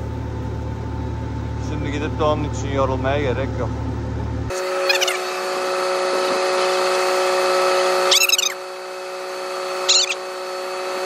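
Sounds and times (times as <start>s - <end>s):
steady mechanical hum: 0.0s - 11.0s
high squeaky calls: 4.6s - 5.4s, 8.0s - 8.7s, 9.8s - 10.3s.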